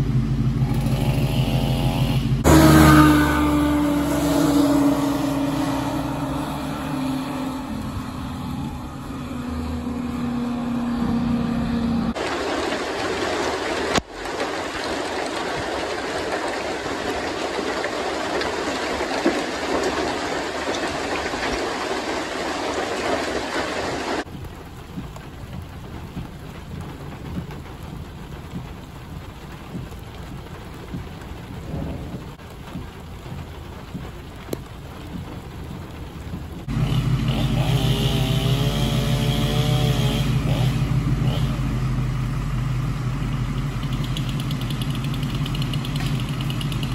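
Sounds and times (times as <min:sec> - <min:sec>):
diesel engine idling: 0:00.0 - 0:12.2, 0:39.5 - 0:46.9
heavy wind-driven rain: 0:02.3 - 0:37.9.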